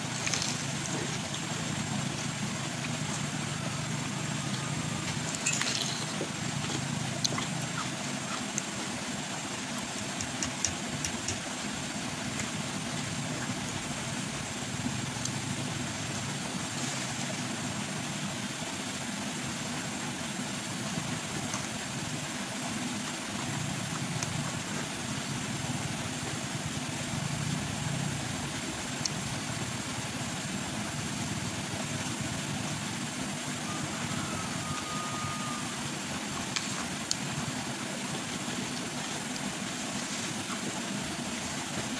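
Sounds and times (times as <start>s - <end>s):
raw vegetables crunching: 0.0s - 3.3s
low rumble and hiss: 0.0s - 41.9s.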